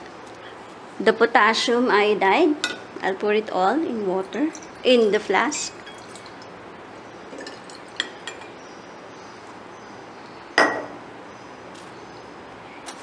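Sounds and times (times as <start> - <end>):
glassware clinking: 5.8 - 6.5, 7.3 - 8.6, 10.6 - 11.0
glass cylinder set down on bench: 10.6 - 11.0.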